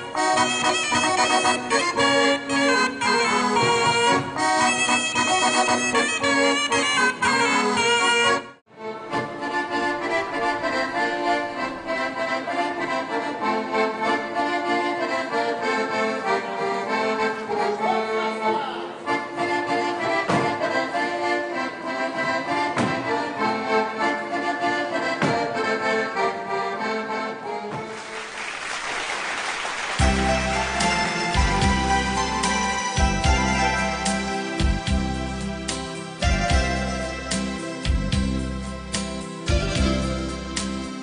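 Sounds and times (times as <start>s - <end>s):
live folk dance music: 0.0s - 41.0s
crowd noise: 8.8s - 40.6s.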